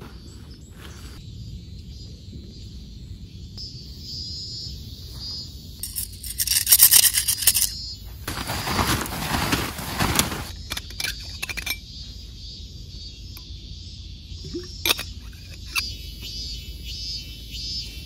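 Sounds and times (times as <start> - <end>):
nylon tent fabric rustling: 7.3 - 10.6.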